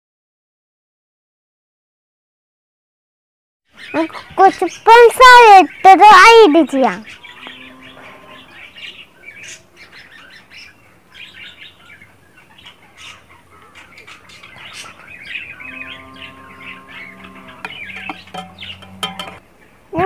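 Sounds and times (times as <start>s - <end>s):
birds chirping: 3.7s - 20.0s
steady humming tone: 10.4s - 20.0s
spoon clinking on steel tumbler: 18.0s - 19.4s.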